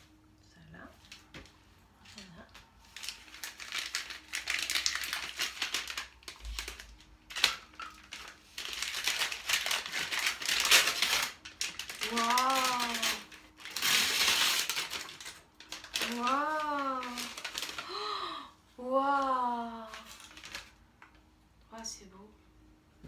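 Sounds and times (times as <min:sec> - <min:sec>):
paper wrapping crinkling and tearing: 0:02.1 - 0:18.4, 0:19.1 - 0:21.2.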